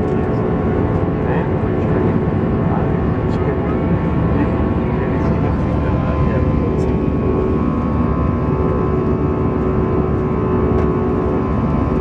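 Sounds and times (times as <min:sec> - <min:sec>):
constant hum: 0:00.0 - 0:12.0
jet engine drone in cabin: 0:00.0 - 0:12.0.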